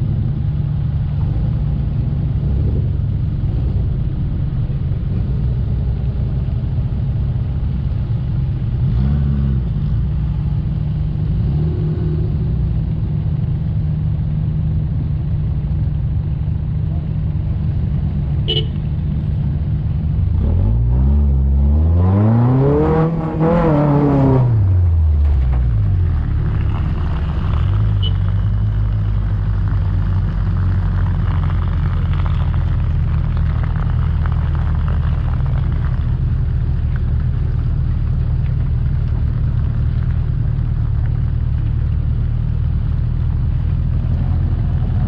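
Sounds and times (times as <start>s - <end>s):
off-road vehicle engine revving: 8.7s - 13.2s, 18.5s - 45.0s.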